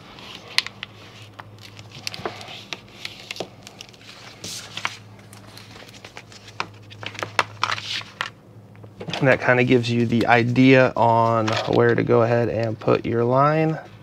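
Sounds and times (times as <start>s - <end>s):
transfer paper crinkling: 0.0s - 8.4s
low steady hum: 0.0s - 14.0s.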